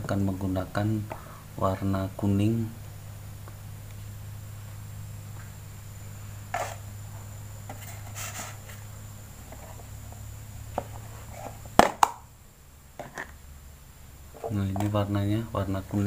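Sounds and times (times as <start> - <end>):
low hum: 0.0 - 16.0
plastic tub rustling: 6.5 - 6.8, 7.7 - 10.1.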